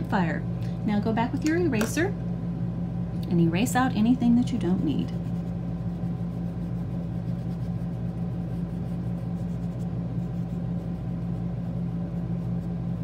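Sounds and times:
steady low hum: 0.0s - 13.0s
eraser rubbing on paper: 5.1s - 13.0s.

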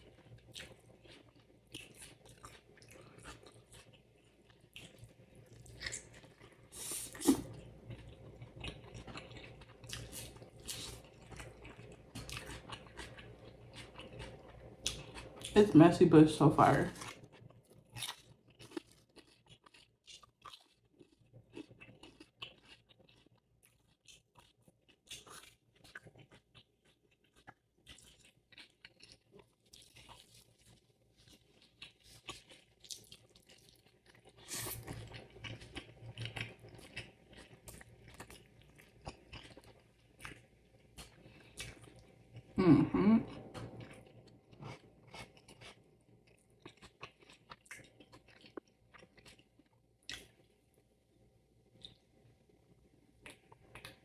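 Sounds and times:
chewing and crunching: 0.0s - 15.7s, 16.8s - 42.6s, 43.2s - 50.9s, 51.6s - 54.0s
wet mouth sounds: 6.8s - 7.5s.

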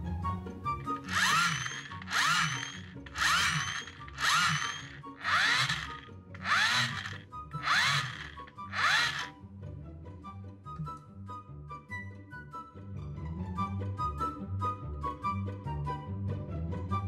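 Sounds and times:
gear motor whirring: 0.9s - 9.3s.

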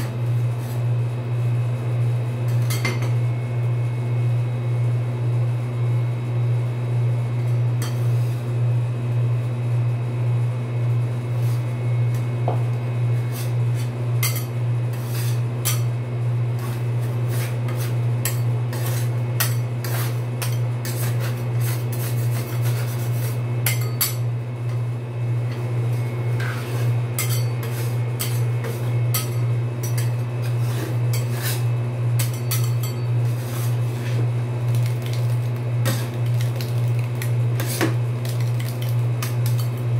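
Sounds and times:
metal spatulas scraping steel plate: 13.3s - 15.9s, 16.6s - 24.2s, 26.4s - 34.2s.

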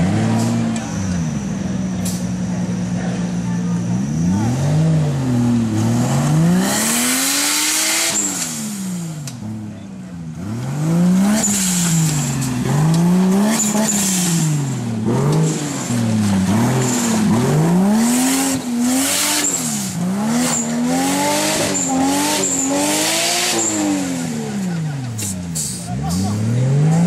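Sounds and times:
off-road engine revving: 0.0s - 27.0s
tyres churning mud: 10.4s - 27.0s.

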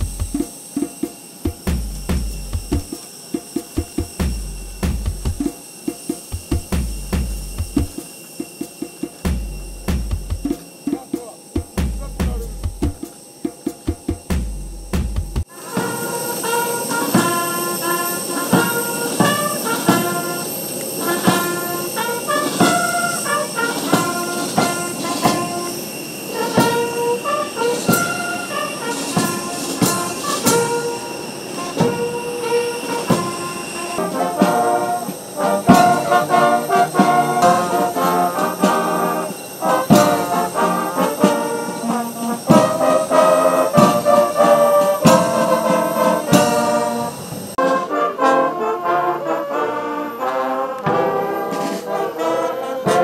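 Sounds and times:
brass band playing: 15.4s - 53.0s.

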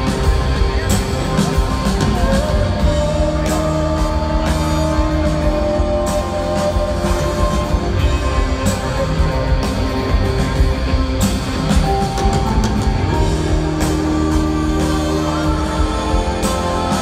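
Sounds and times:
live rock band: 0.0s - 17.0s.

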